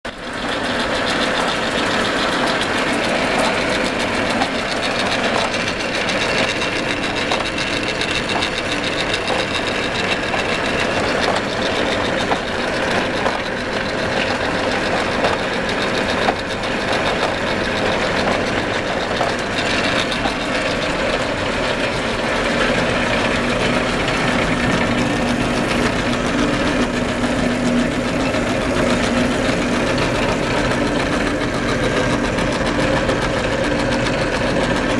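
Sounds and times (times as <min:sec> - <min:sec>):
cutting machines clattering: 0:00.1 - 0:34.9.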